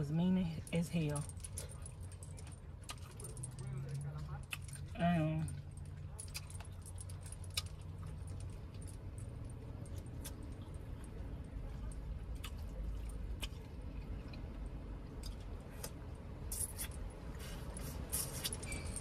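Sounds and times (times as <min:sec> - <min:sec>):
chewing: 0:01.2 - 0:16.0.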